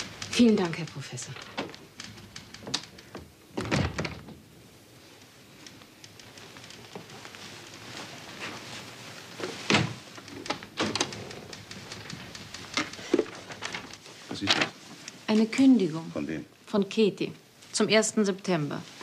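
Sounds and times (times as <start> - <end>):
door closing thump: 3.6 - 4.4, 9.7 - 10.0.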